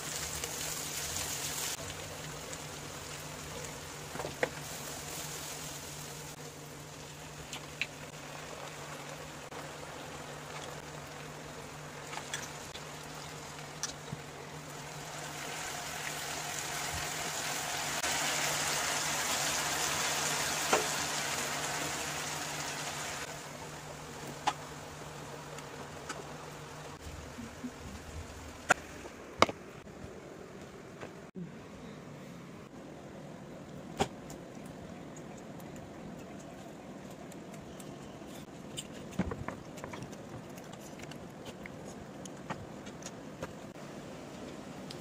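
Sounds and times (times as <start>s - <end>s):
food sizzling in a wok: 0.0s - 7.2s, 14.7s - 23.4s.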